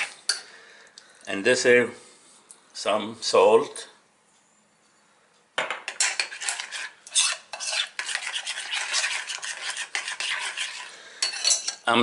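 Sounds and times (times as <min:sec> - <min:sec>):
metal spoon scraping a bowl: 0:00.0 - 0:00.4, 0:05.9 - 0:11.9.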